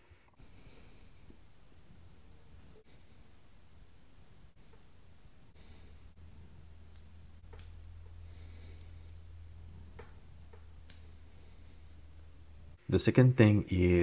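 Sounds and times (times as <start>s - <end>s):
low steady hum: 0.0s - 14.0s
small metal tool clicking: 6.9s - 7.8s, 10.8s - 11.1s.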